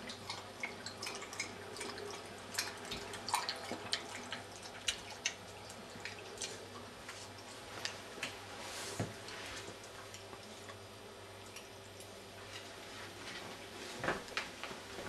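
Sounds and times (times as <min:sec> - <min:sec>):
dog lapping water: 0:00.0 - 0:06.9.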